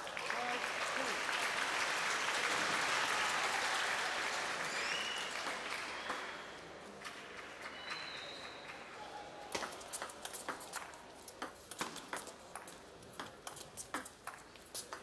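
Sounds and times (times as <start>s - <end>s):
spectators applauding: 0.0s - 9.0s.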